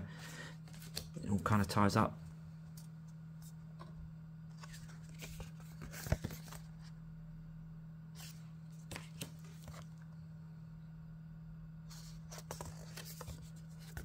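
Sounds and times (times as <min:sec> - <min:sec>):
cards shuffling and sliding: 0:00.6 - 0:01.1, 0:04.5 - 0:06.9, 0:08.2 - 0:10.0, 0:11.9 - 0:14.0.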